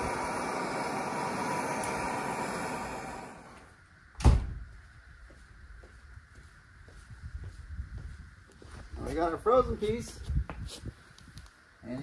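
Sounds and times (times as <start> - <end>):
gas torch hissing: 0.0 - 3.8.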